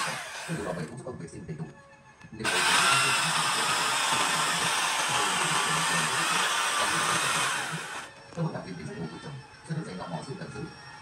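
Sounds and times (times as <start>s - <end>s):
power tool hissing whir: 0.0s - 0.9s, 2.4s - 8.1s.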